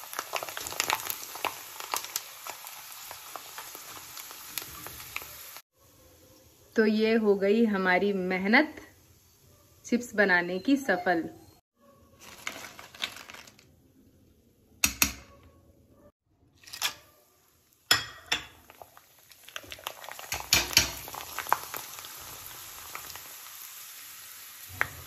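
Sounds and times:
potato slices sizzling in oil: 0:00.0 - 0:05.6, 0:17.3 - 0:25.0
fried chips rustling: 0:12.2 - 0:13.7.

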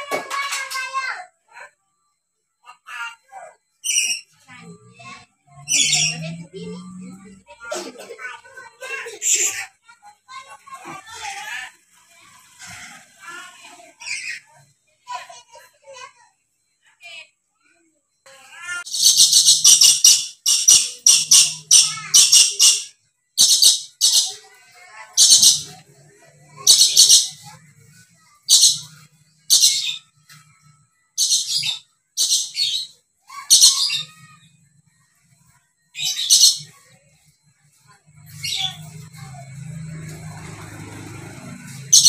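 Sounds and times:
parrot shrieking: 0:18.8 - 0:24.4, 0:26.6 - 0:27.4, 0:31.2 - 0:34.4.

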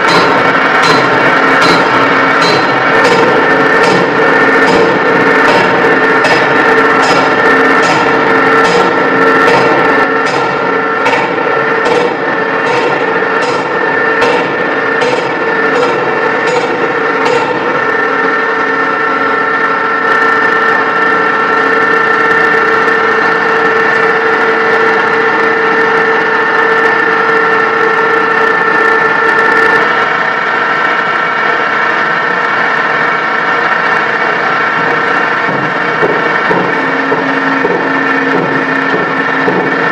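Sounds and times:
industrial machinery drone: 0:00.0 - 0:39.9
humming tones: 0:32.6 - 0:39.9.

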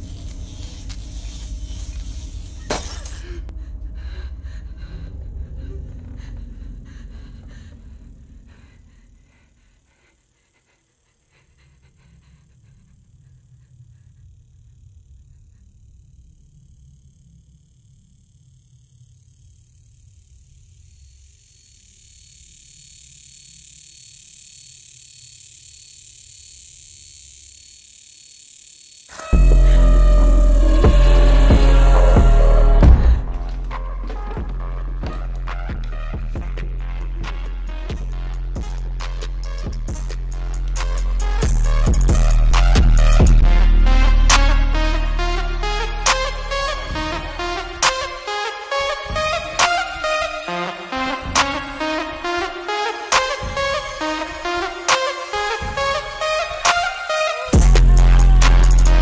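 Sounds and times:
low rumbling drone: 0:03.3 - 0:09.5, 0:29.2 - 0:38.3
loud music: 0:29.2 - 0:34.1, 0:57.4 - 0:59.0.

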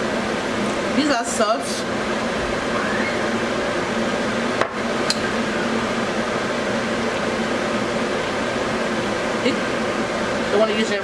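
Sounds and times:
steady hiss and hum: 0:00.0 - 0:11.0.

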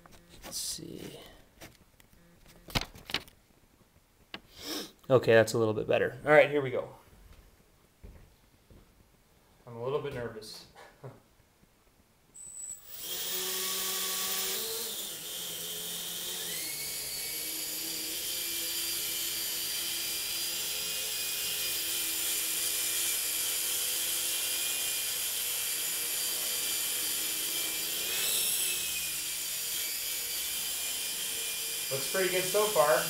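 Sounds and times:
rc helicopter motor whine: 0:12.4 - 0:33.0.

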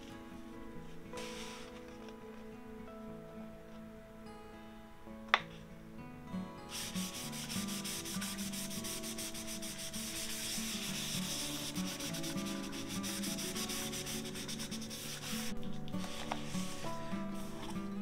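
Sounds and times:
cloth scrubbing on cardstock: 0:06.7 - 0:17.8.

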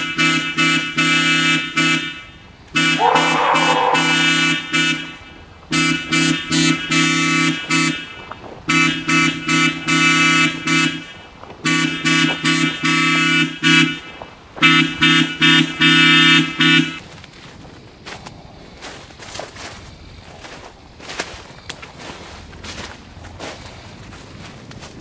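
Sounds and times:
pitch-shifted car horn honking: 0:00.0 - 0:17.0.

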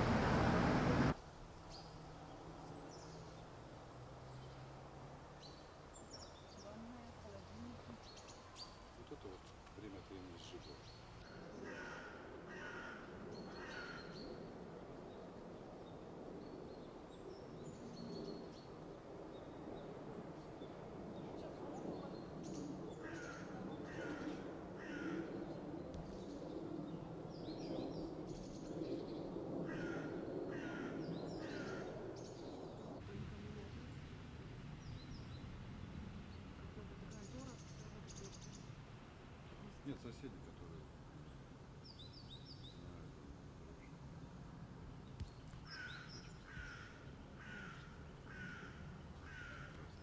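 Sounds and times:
outdoor background noise: 0:00.0 - 0:50.0
crows cawing: 0:11.6 - 0:14.2, 0:23.0 - 0:25.4, 0:29.6 - 0:32.0, 0:45.7 - 0:49.9.

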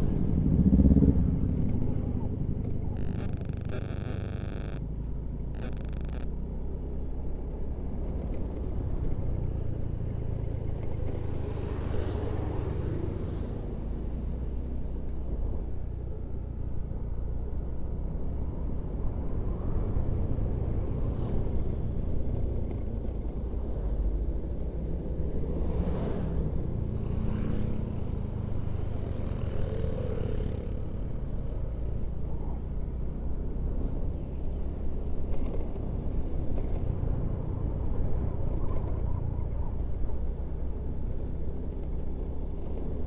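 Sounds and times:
vehicle engine and road rumble: 0:00.0 - 0:43.0.

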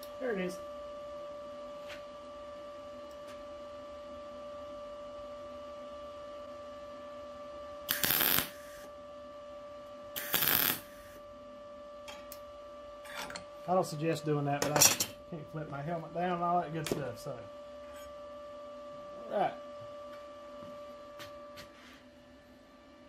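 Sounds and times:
steady electrical hum: 0:00.0 - 0:23.0
welder arc crackling: 0:07.9 - 0:08.9, 0:10.2 - 0:11.2.

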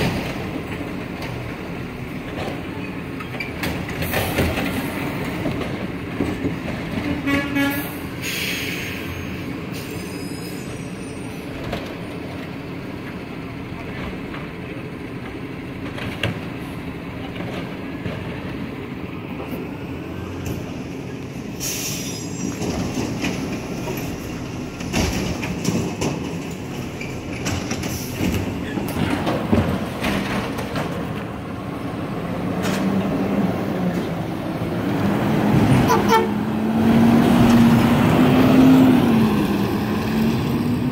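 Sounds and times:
garbage truck diesel engine: 0:00.0 - 0:40.9
clanks and knocks: 0:24.8 - 0:31.2.

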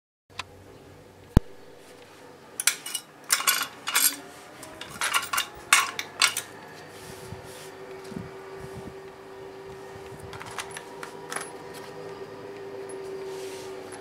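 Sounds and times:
metal clinking and rattling: 0:02.6 - 0:06.5, 0:10.3 - 0:11.6.

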